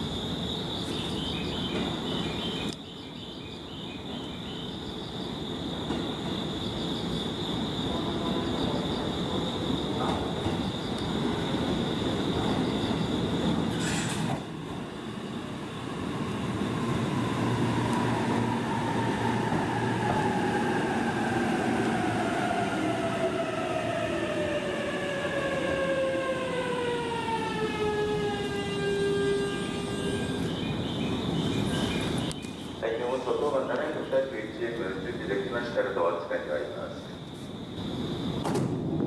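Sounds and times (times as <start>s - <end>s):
train wheel and running noise: 0.0s - 2.8s, 5.2s - 39.0s
electric train traction motor whine: 21.2s - 30.8s.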